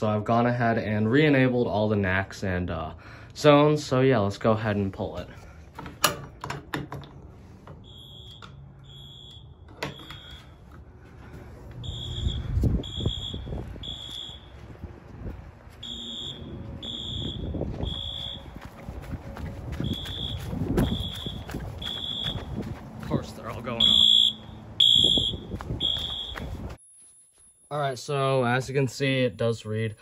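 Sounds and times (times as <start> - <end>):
fire alarm horn beeping: 7.8 - 10.7, 11.8 - 14.8, 15.8 - 18.6, 19.8 - 22.6, 23.6 - 26.7
fire alarm pull station clicks: 9.2 - 10.4.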